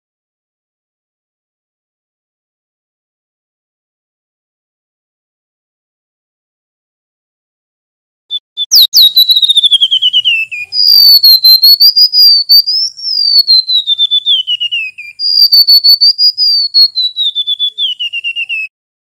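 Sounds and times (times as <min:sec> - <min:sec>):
songbird whistling and trilling: 0:08.3 - 0:18.7.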